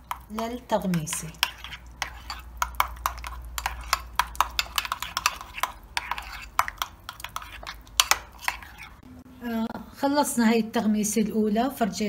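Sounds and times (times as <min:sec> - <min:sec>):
spoon scraping ceramic bowl: 0:00.9 - 0:09.0.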